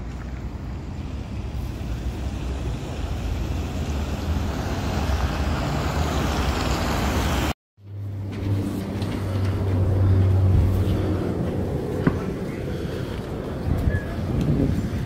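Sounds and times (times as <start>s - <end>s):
low engine hum: 0.0s - 15.0s
road traffic passing: 0.0s - 15.0s
wind on microphone: 13.2s - 15.0s.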